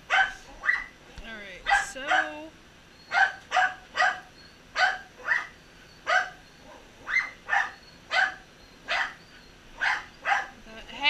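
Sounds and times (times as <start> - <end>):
dog barking: 0.0 - 1.0, 1.6 - 2.5, 3.1 - 9.2, 9.8 - 10.6.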